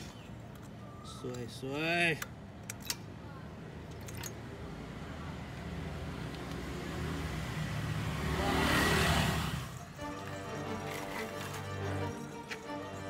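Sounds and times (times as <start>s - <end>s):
vehicle passing by: 4.8s - 11.7s.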